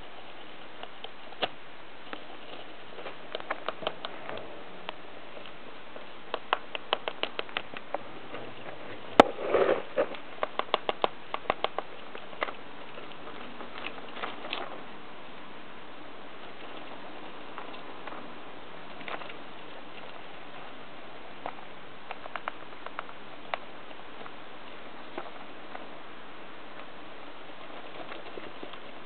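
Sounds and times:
hamster gnawing and scrabbling: 0:00.0 - 0:14.9, 0:16.3 - 0:29.0
crinkling rustle: 0:00.0 - 0:15.0, 0:16.2 - 0:29.0
rapid sharp clicks: 0:03.3 - 0:05.6, 0:06.2 - 0:08.0, 0:10.1 - 0:14.6, 0:21.4 - 0:25.9.

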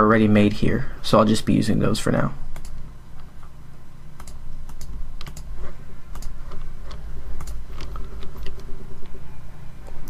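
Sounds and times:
steady low hum: 0:00.0 - 0:10.0
computer mouse clicking: 0:02.5 - 0:02.8, 0:04.2 - 0:05.5, 0:06.1 - 0:09.2.

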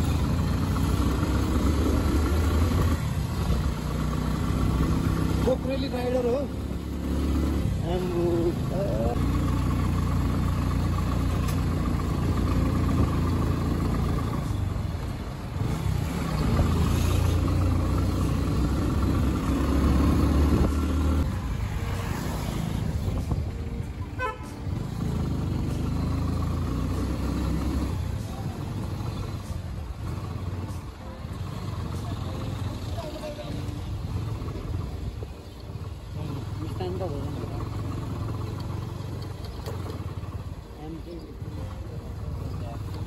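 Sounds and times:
vehicle engine running: 0:00.0 - 0:43.0
vehicle horn: 0:24.2 - 0:24.8.

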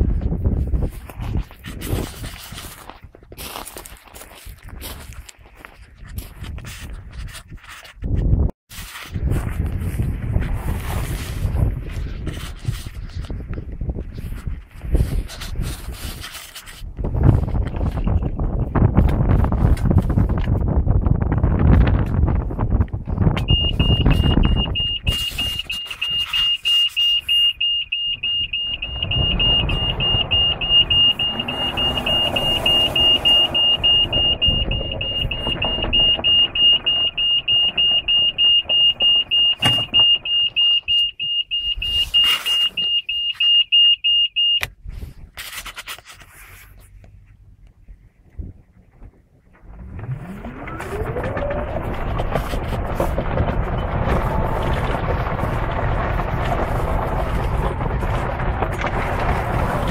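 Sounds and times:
golf cart reverse warning buzzer: 0:23.4 - 0:44.7.

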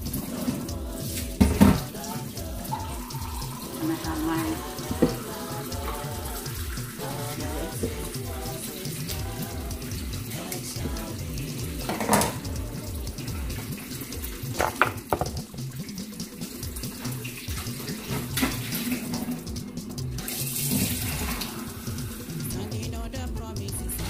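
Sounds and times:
tap running into sink: 0:01.2 - 0:02.0, 0:02.6 - 0:07.0, 0:10.8 - 0:12.6, 0:13.3 - 0:19.4.

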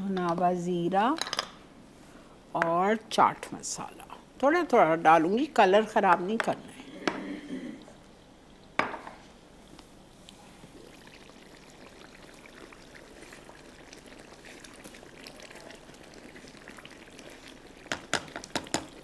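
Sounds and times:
curry simmering and bubbling: 0:10.3 - 0:19.0.

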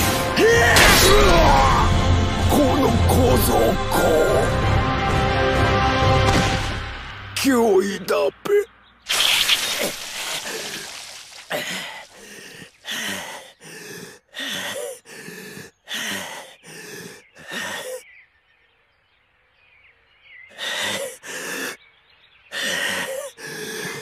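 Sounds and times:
person panting heavily: 0:11.6 - 0:18.1, 0:20.5 - 0:21.8, 0:22.5 - 0:24.0.

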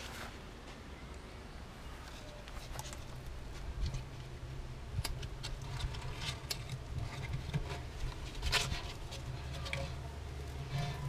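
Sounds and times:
low steady rumble: 0:02.6 - 0:11.0.

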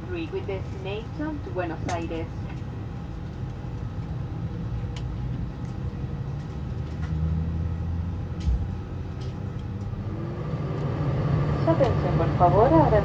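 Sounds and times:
airliner cabin rumble: 0:00.0 - 0:13.0
short low thump: 0:08.4 - 0:09.0.

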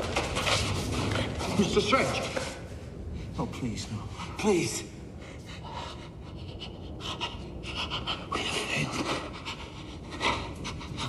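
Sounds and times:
person panting and gasping: 0:05.2 - 0:11.0.

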